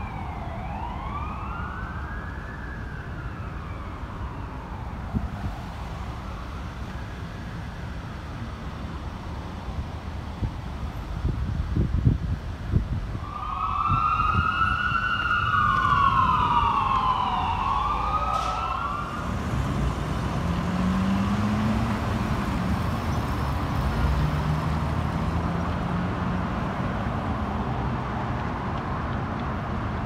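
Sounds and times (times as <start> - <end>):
fire truck siren wailing: 0.0 - 8.0, 13.1 - 25.7
diesel engine rumble: 3.8 - 30.0.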